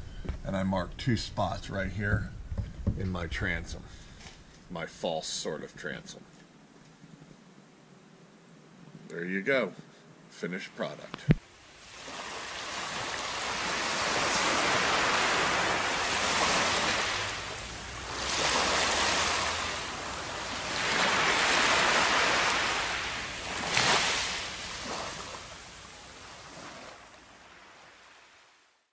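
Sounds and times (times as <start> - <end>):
ocean surf on sandy beach: 11.2 - 28.8.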